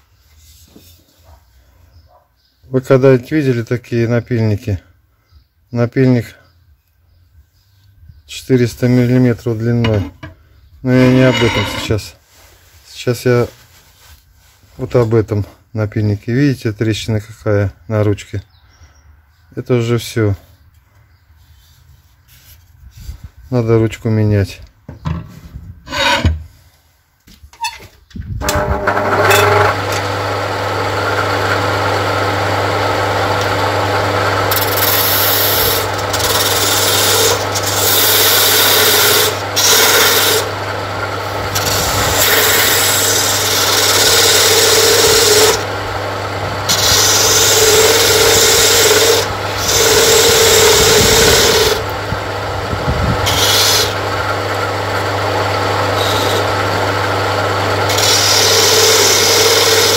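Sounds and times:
chisel scraping spinning wood: 0:10.9 - 0:12.1, 0:25.9 - 0:26.5, 0:28.4 - 0:30.2, 0:33.4 - 0:57.2, 0:57.8 - 0:59.9
lathe motor humming: 0:28.5 - 0:59.9.

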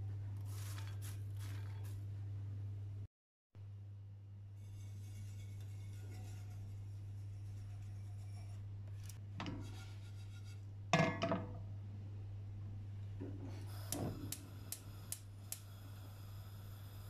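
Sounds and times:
frying pan scraping on metal grate: 0:00.4 - 0:02.0, 0:04.6 - 0:10.7.

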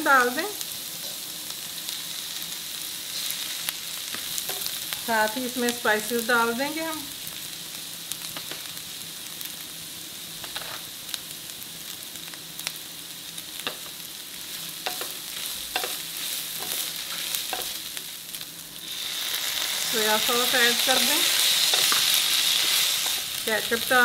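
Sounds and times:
chicken and onions sizzling in pan: 0:00.0 - 0:24.0
spatula scraping a pan: 0:10.5 - 0:10.9, 0:18.9 - 0:23.4.

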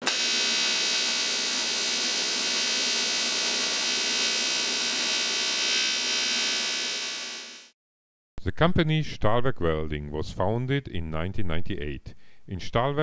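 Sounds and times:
buzzing electric arc: 0:00.0 - 0:07.7.

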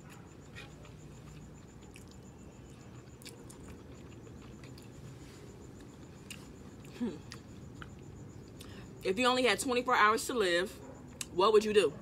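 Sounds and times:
chewing food: 0:00.0 - 0:08.7
low background noise: 0:00.0 - 0:12.0.

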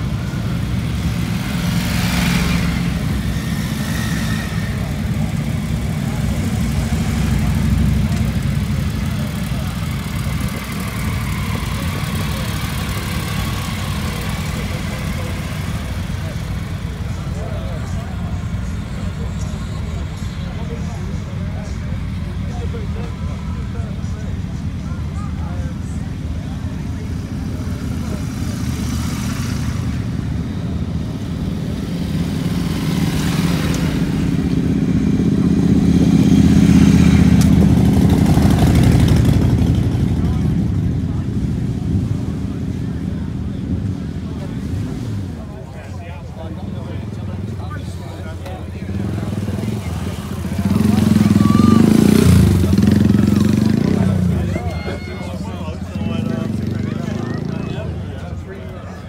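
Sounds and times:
people talking: 0:00.0 - 0:59.0
motorcycle engine idling: 0:04.6 - 0:44.5.

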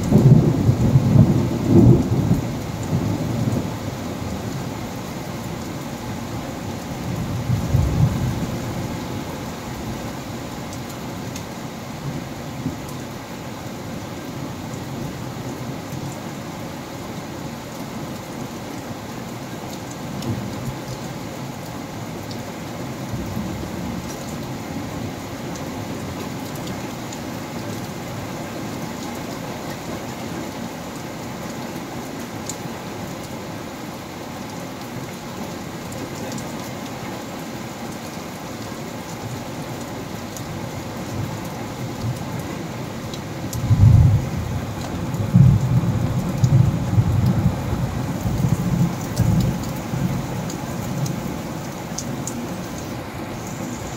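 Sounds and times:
low rumble of thunder: 0:00.0 - 0:04.0, 0:07.0 - 0:09.0, 0:43.6 - 0:51.1
steady rain falling: 0:00.0 - 0:53.9.

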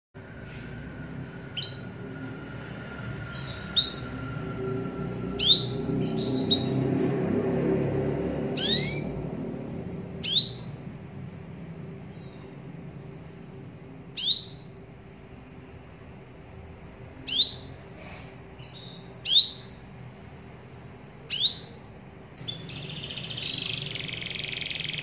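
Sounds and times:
canary chirping: 0:01.5 - 0:02.1, 0:03.2 - 0:07.1, 0:08.5 - 0:09.3, 0:10.2 - 0:10.9, 0:12.1 - 0:12.6, 0:14.1 - 0:14.9, 0:17.1 - 0:17.9, 0:18.6 - 0:20.0, 0:21.2 - 0:25.0.

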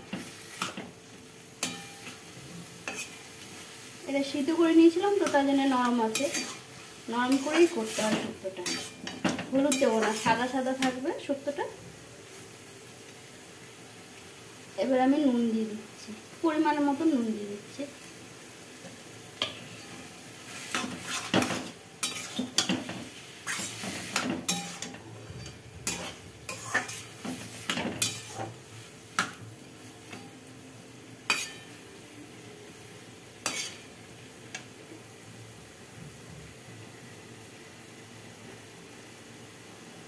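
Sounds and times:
faint sizzle: 0:00.0 - 0:40.0
metal spatula scraping a pan: 0:01.6 - 0:02.2, 0:02.8 - 0:03.3, 0:05.2 - 0:11.0, 0:19.4 - 0:28.6, 0:31.3 - 0:31.8, 0:33.4 - 0:33.9.

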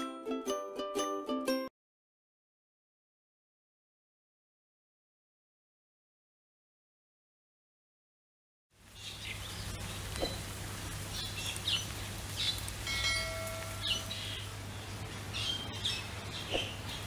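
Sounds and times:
birds chirping: 0:08.8 - 0:17.0.

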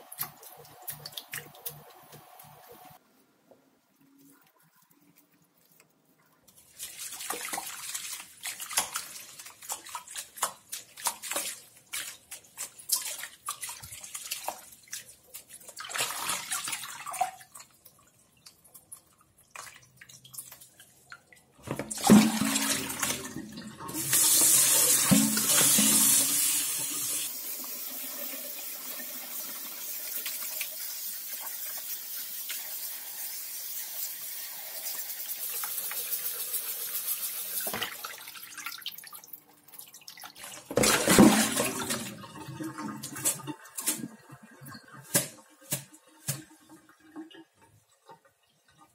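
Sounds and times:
tap water running into basin: 0:00.0 - 0:03.0, 0:06.5 - 0:48.9
hands splashing in water basin: 0:06.6 - 0:17.7, 0:21.7 - 0:23.4, 0:40.3 - 0:42.2, 0:45.0 - 0:46.6.

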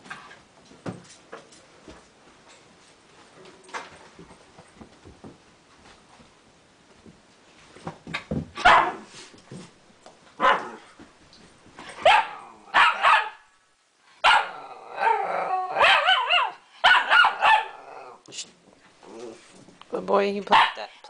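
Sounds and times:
dog barking and yipping: 0:08.6 - 0:09.0, 0:10.4 - 0:10.8, 0:12.0 - 0:13.5, 0:14.2 - 0:17.8.

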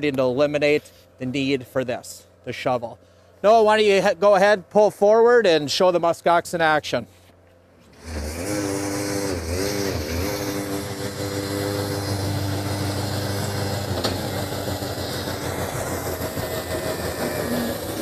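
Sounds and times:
loader engine running: 0:07.8 - 0:18.0
snowblower rushing through snow: 0:07.9 - 0:18.0.

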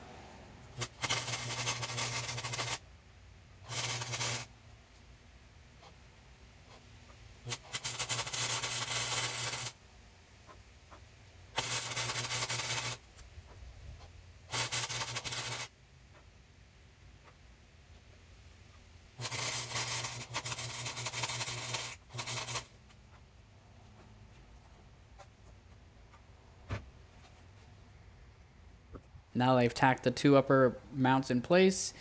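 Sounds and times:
low welder hum: 0:00.0 - 0:03.0, 0:03.6 - 0:04.6, 0:07.4 - 0:09.8, 0:11.4 - 0:13.2, 0:14.5 - 0:15.8, 0:19.1 - 0:22.8
welder arc crackle: 0:00.6 - 0:02.9, 0:03.6 - 0:04.6, 0:07.4 - 0:09.8, 0:11.5 - 0:13.2, 0:14.5 - 0:15.8, 0:19.1 - 0:22.8.

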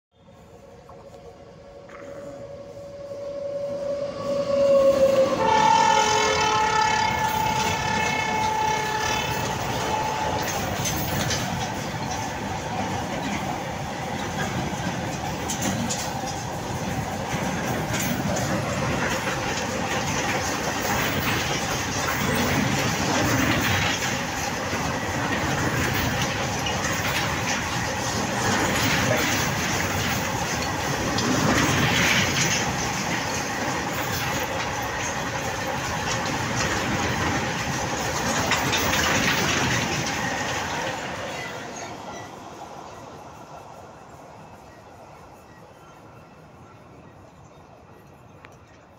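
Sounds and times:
train wagons rumbling over rails: 0:00.2 - 0:48.9
locomotive horn blast: 0:01.7 - 0:11.1
wheels and couplings clattering: 0:07.1 - 0:42.4.

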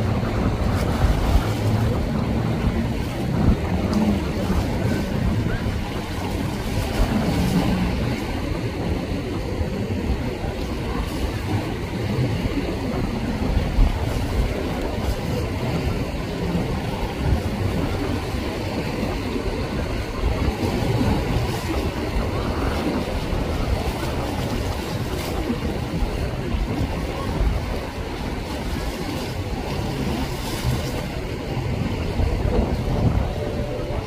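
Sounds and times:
choppy sea wash: 0:00.0 - 0:34.0
outboard motors running: 0:00.0 - 0:34.0
wind rumbling on microphone: 0:00.0 - 0:34.0.

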